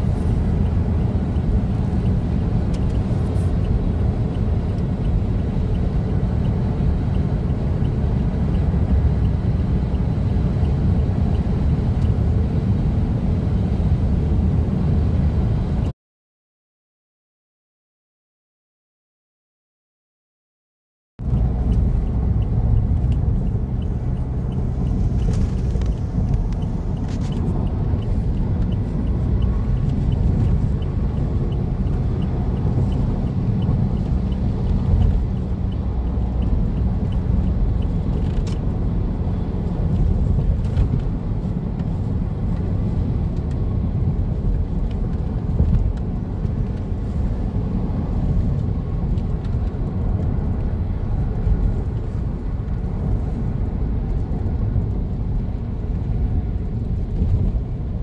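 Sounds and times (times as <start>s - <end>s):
car interior road and engine rumble: 0.0s - 15.9s, 21.2s - 58.0s.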